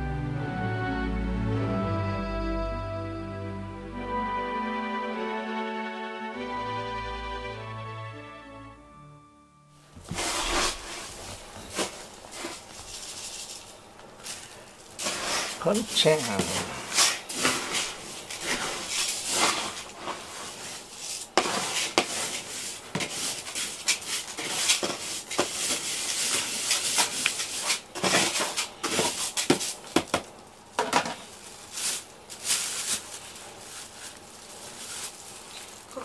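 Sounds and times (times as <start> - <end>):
brush stroking cat fur: 10.0 - 29.9, 31.3 - 35.5.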